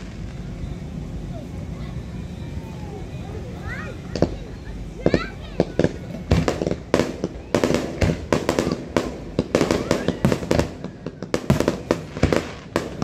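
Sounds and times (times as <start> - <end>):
fireworks bursting: 0.0 - 13.0.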